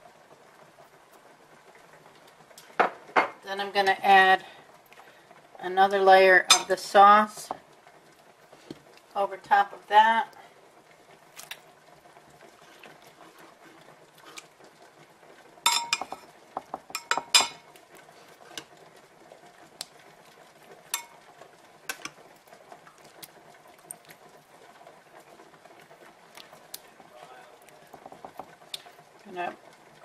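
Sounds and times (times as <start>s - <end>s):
spoon clinking on dishes: 15.7s - 16.3s, 17.0s - 17.7s, 21.0s - 21.2s.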